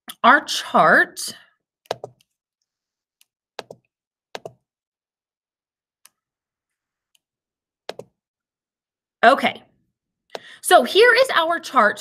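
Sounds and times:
computer mouse clicking: 1.8s - 2.3s, 7.9s - 8.1s.

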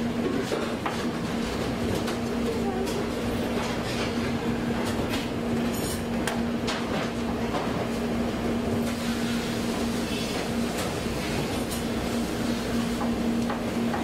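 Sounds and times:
kitchen machine hum: 0.0s - 14.0s.

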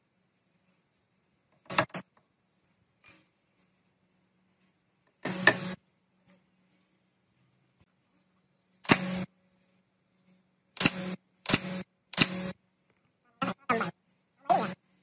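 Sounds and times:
nail gun firing: 1.7s - 2.0s, 5.2s - 5.8s, 8.8s - 9.3s, 10.8s - 12.6s.

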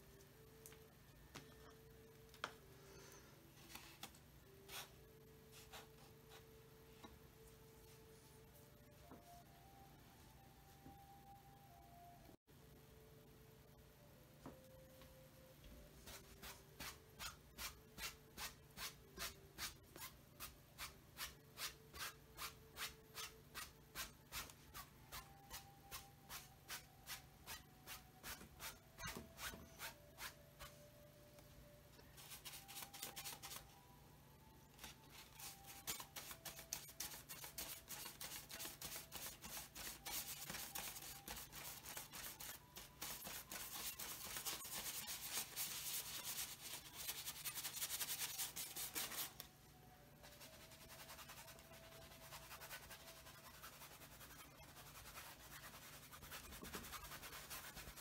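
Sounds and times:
paintbrush scrubbing canvas: 34.8s - 49.4s, 50.2s - 58.0s.

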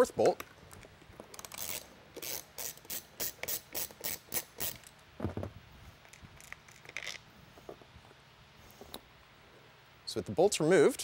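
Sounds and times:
ratchet wrench clicking: 1.3s - 4.9s.

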